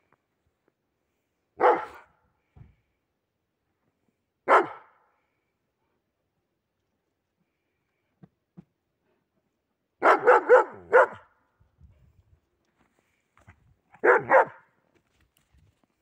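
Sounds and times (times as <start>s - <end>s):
dog barking: 1.6s - 2.1s, 4.5s - 5.0s, 10.0s - 11.3s, 14.0s - 14.7s.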